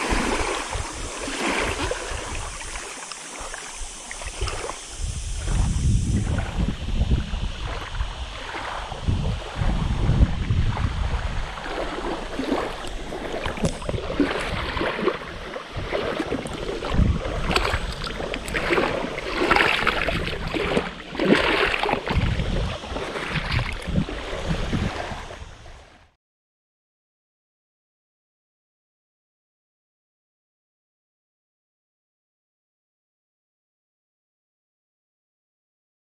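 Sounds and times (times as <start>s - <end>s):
wind buffeting microphone: 0.0s - 2.8s, 3.5s - 26.1s
water splashing: 0.0s - 26.0s
small waves lapping on shore: 0.0s - 26.2s.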